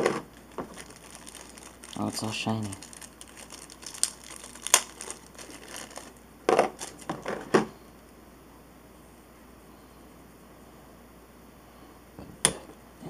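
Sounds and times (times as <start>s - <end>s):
plastic packaging crinkling: 0.0s - 7.5s.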